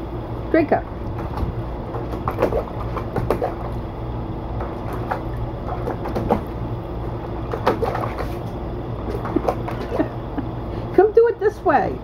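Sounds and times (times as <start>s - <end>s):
box fan humming: 0.0s - 12.0s
dog splashing water in pool: 1.2s - 3.9s, 4.5s - 10.1s.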